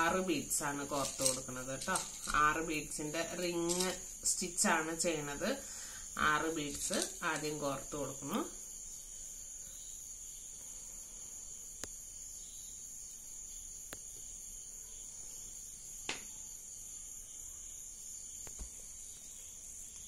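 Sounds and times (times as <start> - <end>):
steady high-pitched hiss: 0.0 - 20.0
plastic beads clicking together: 0.9 - 2.5, 3.4 - 4.1.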